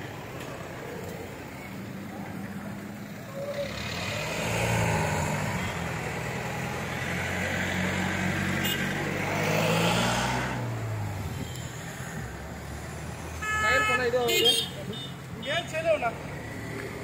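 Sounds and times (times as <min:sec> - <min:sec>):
road and traffic noise: 0:00.0 - 0:17.0.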